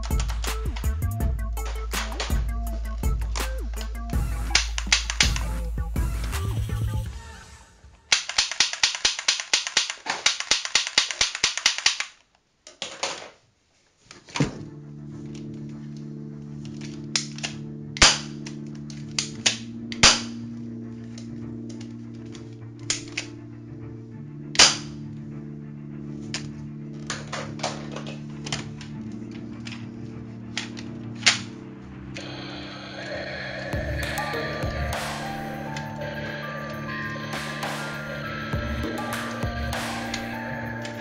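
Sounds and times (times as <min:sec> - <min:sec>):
toy gun clicking: 0:08.1 - 0:13.3, 0:17.2 - 0:18.6.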